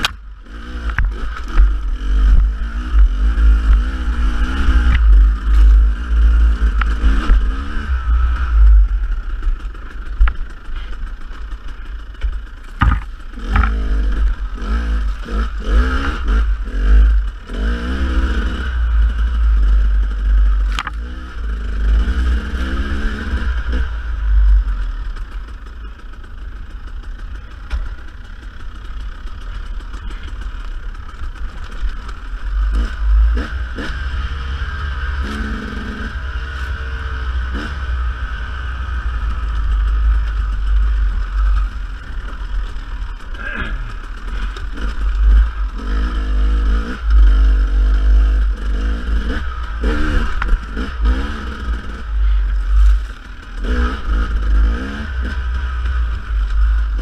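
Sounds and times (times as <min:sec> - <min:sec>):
dirt bike engine revving: 0:00.0 - 0:57.0
heavy low rumble: 0:00.0 - 0:57.0
knocks and clatter: 0:09.4 - 0:14.4.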